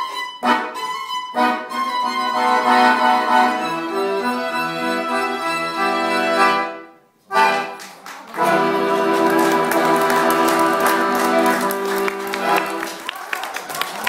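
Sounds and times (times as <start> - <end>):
violin and accordion duet: 0.0 - 7.8, 8.4 - 13.0
audience applause: 7.8 - 14.0.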